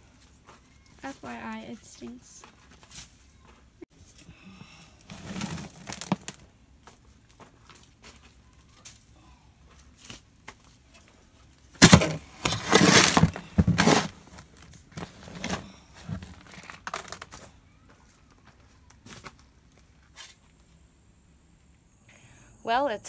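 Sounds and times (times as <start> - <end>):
shovel scooping dirt: 5.0 - 6.4, 11.7 - 16.8
soil sliding off shovel: 5.0 - 6.4, 11.8 - 14.4.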